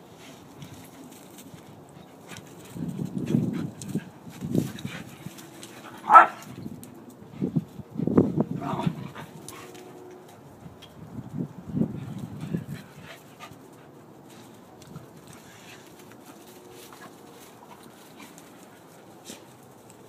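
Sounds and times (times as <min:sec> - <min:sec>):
dogs barking: 0:05.9 - 0:06.5
dogs growling: 0:08.6 - 0:09.3.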